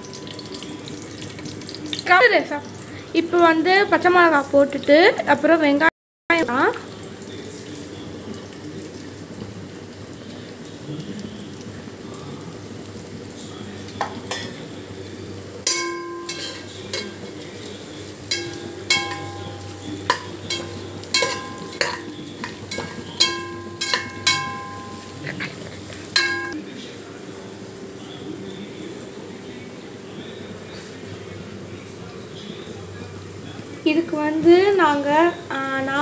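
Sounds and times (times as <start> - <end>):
onions sizzling in hot oil: 0.0 - 5.3, 6.4 - 28.0
spatula clinking against metal pot: 14.0 - 14.6, 15.6 - 26.6.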